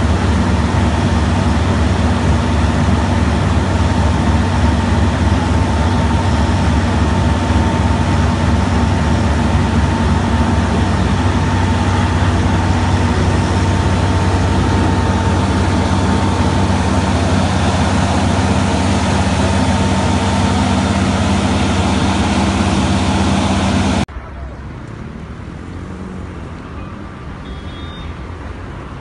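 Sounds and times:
heavy engine idling: 0.0 - 24.5.

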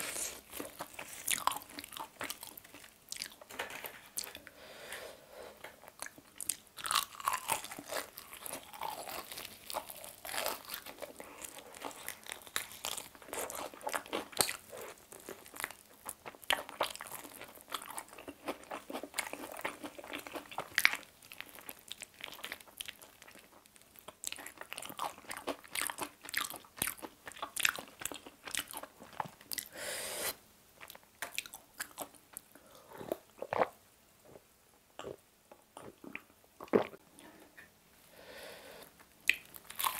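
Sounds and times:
crunching fried chicken: 0.0 - 3.4, 6.4 - 29.6, 39.3 - 39.9.

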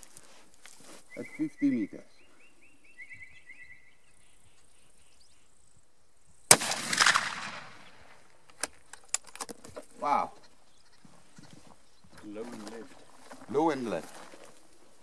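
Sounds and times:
rifle shot with echo: 6.5 - 8.2.

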